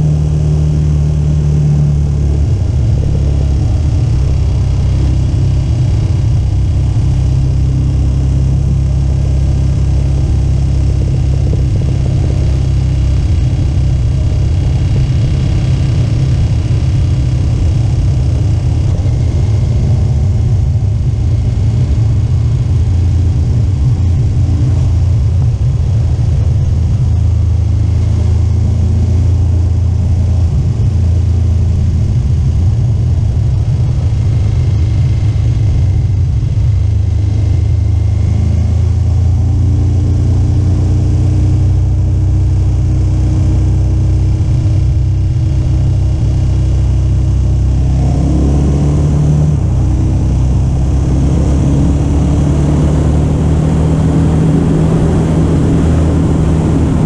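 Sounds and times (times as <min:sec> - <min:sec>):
motorcycle engine running: 0:00.0 - 0:57.0
wind noise: 0:00.0 - 0:57.0.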